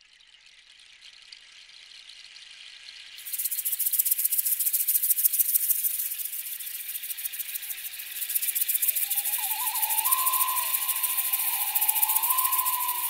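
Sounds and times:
wavering high tone: 8.8s - 13.0s.

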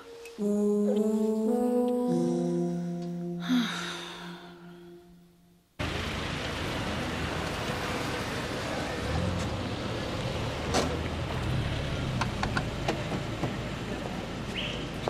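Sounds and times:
traffic hiss: 5.8s - 15.0s.

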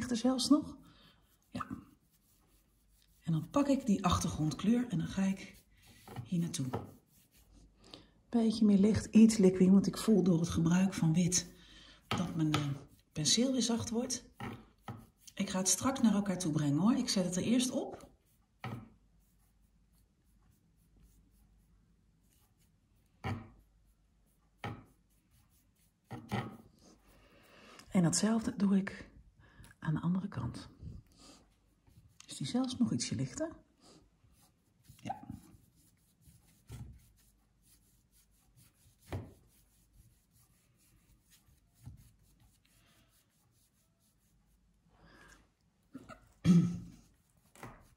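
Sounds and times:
brush bristles rubbing canvas: 0.0s - 7.8s, 9.4s - 27.4s, 31.3s - 33.0s, 34.2s - 44.8s, 46.9s - 47.9s
brush touches: 0.0s - 7.8s, 8.8s - 27.4s, 34.2s - 44.8s.

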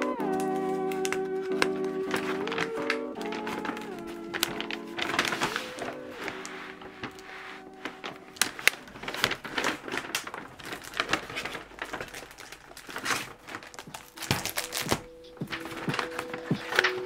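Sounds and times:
paper bag rustling and crinkling: 0.0s - 17.0s
plastic binder knocks: 13.8s - 16.0s.

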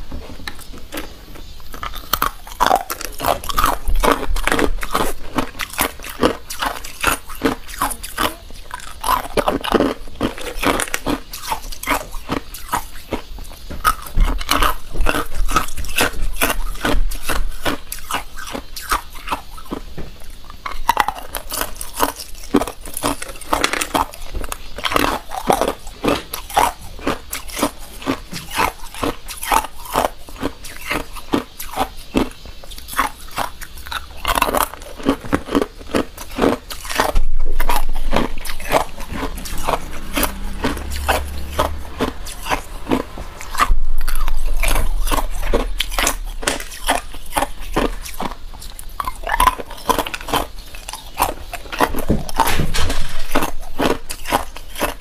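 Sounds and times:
ice cubes crunched by teeth: 0.5s - 55.0s.

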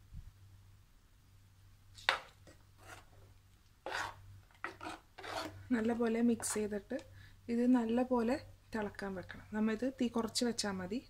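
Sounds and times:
spoon scraping clay pot: 2.0s - 3.2s, 3.8s - 7.0s.

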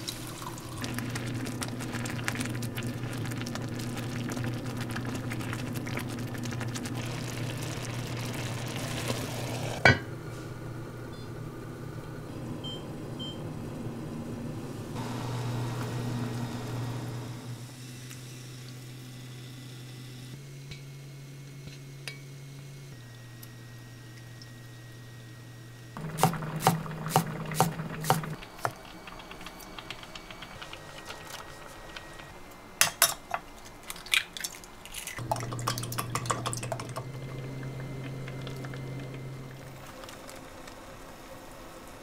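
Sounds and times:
soup simmering and bubbling: 0.0s - 9.8s, 26.0s - 32.4s, 35.2s - 41.3s.

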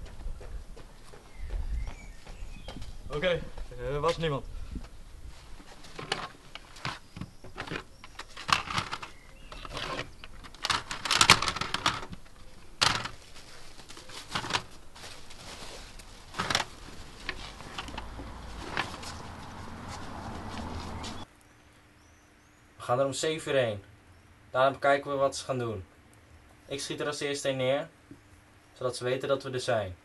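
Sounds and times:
bag rustling: 5.3s - 21.2s.

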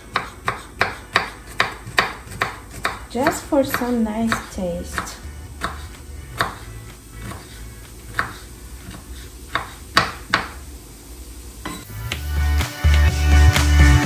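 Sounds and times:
knife tapping cutting board: 0.1s - 10.6s
music with heavy beat: 11.8s - 14.0s.

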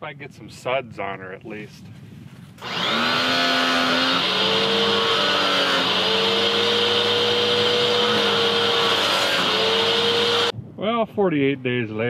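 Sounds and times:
pressure washer hum: 2.6s - 10.5s.

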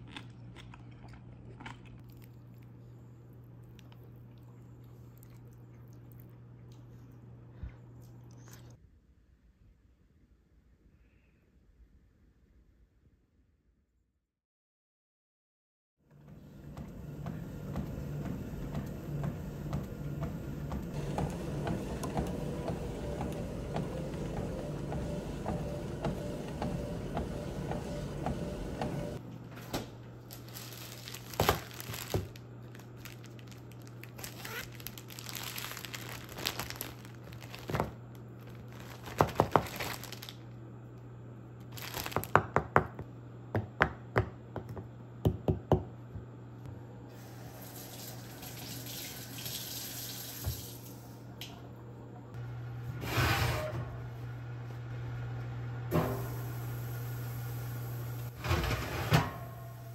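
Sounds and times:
treadmill humming and ticking: 16.1s - 29.2s
plastic bag crinkling: 30.2s - 40.4s, 41.7s - 42.4s.

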